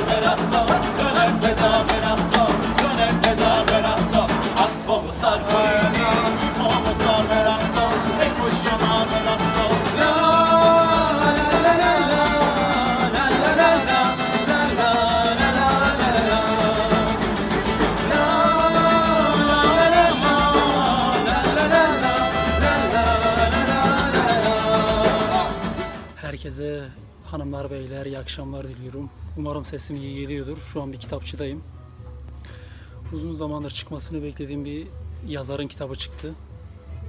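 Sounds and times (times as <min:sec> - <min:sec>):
frame drum beat: 0:00.0 - 0:04.8, 0:05.4 - 0:26.0
strummed acoustic guitar: 0:00.0 - 0:26.2
violin: 0:05.4 - 0:26.2
woman singing: 0:18.0 - 0:25.7.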